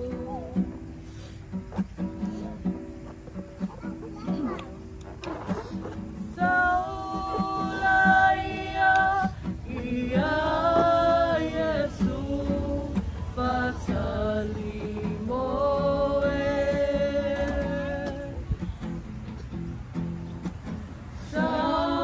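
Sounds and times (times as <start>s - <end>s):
group singing long notes: 6.2s - 18.6s, 21.1s - 22.0s.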